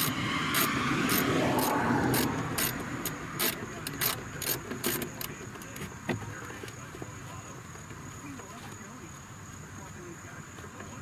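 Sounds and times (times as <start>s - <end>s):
ratchet wrench clicking: 0.0s - 5.7s
high insect trill: 0.0s - 11.0s.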